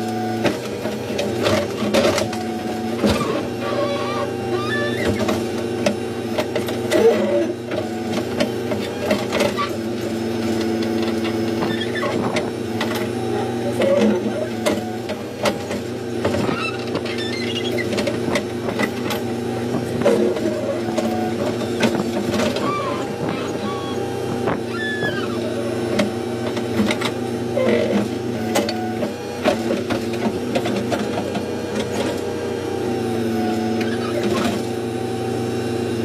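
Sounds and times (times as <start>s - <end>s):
diesel engine droning under load: 0.0s - 36.0s.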